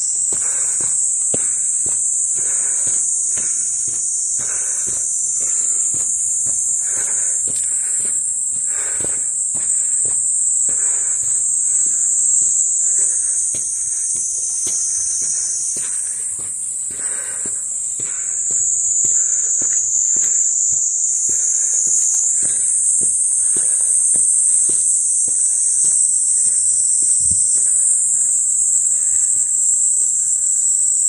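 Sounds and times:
footsteps on a path: 0.0s - 31.0s
high-pitched insect drone: 0.0s - 31.0s.

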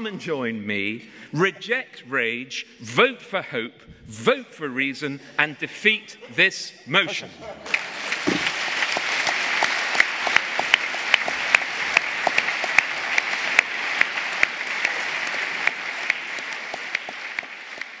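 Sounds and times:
audience applauding: 7.6s - 18.0s.

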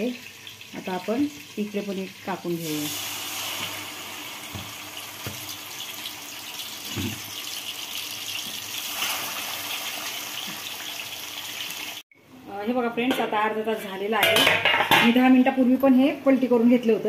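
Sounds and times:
chicken sizzling in hot oil: 0.0s - 12.0s.

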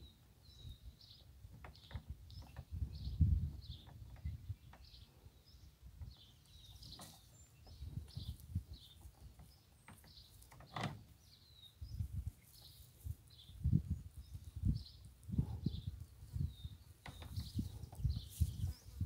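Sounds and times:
small birds chirping: 0.0s - 19.0s
faint rustles and low thumps: 1.1s - 19.0s.

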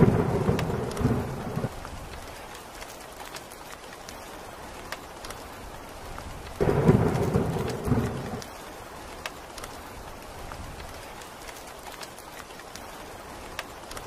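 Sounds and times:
thunderclap rumbling: 0.0s - 2.3s, 6.5s - 8.6s
steady rain falling: 0.0s - 14.0s.

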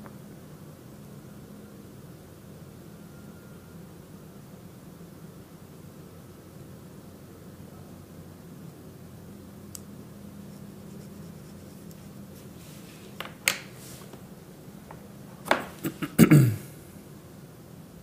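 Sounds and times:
low room hum: 0.0s - 18.0s
objects clicking on a desk: 13.1s - 13.8s, 14.9s - 15.8s.

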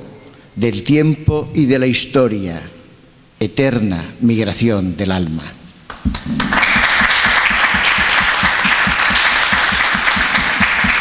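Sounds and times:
close hands clapping: 5.9s - 11.0s
audience applauding: 6.1s - 11.0s.

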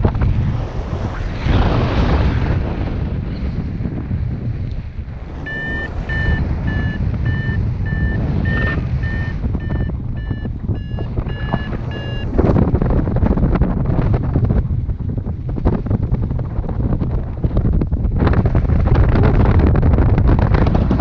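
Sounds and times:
wind rushing over microphone: 0.0s - 21.0s
variometer short beeps: 5.3s - 12.6s.

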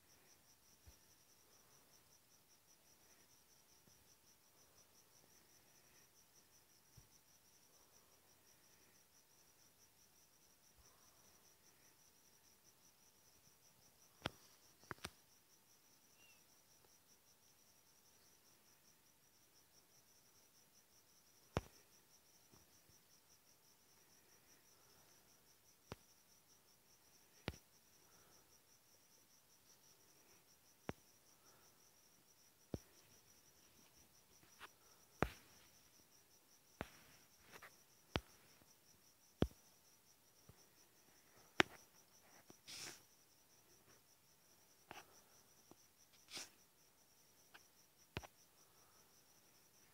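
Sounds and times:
high-pitched insect chirping: 15.8s - 16.8s
faint high chirp: 16.1s - 16.5s.

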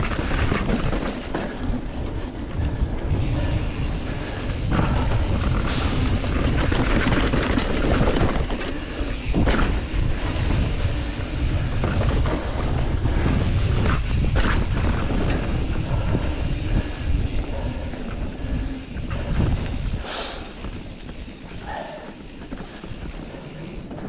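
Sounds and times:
bike rattling: 0.0s - 24.0s
bike tyres rolling on dirt: 0.0s - 24.0s
bike knocking over bumps: 4.6s - 15.8s.

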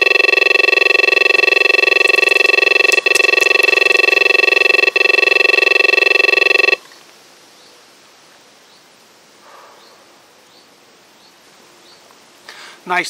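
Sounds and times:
electronic bite alarm beeping: 0.0s - 6.8s.

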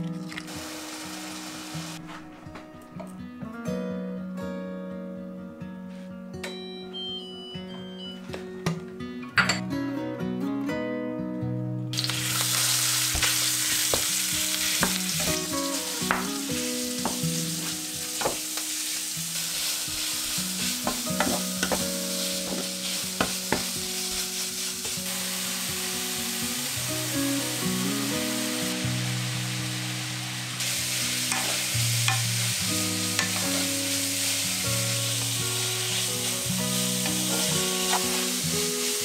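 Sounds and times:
meat sizzling in a pan: 0.2s - 2.0s, 11.9s - 39.0s.

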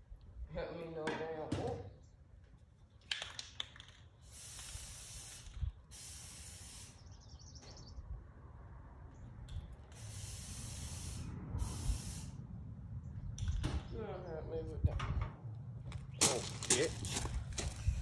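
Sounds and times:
spray hissing in bursts: 4.2s - 7.3s, 9.8s - 12.4s.

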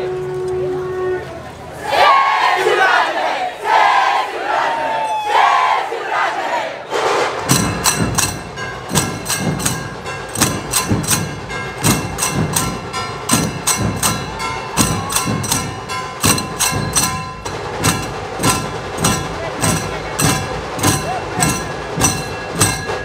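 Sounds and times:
deep drum thuds: 6.9s - 23.0s
ringing metal clashes: 7.4s - 23.0s.

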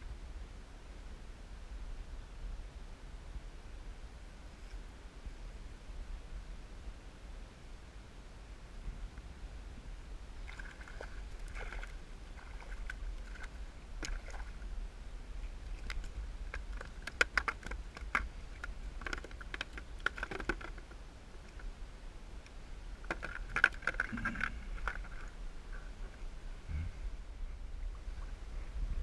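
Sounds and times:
steady low rumble: 24.0s - 29.0s.

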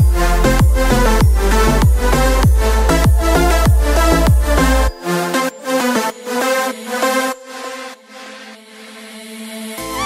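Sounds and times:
electronic dance music: 0.0s - 10.0s.

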